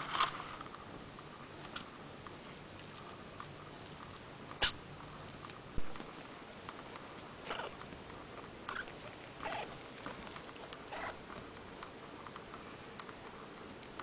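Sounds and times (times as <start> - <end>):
kittens mewing: 7.4 - 7.8, 8.7 - 9.8, 10.9 - 11.3
faint light ticks: 11.4 - 14.0.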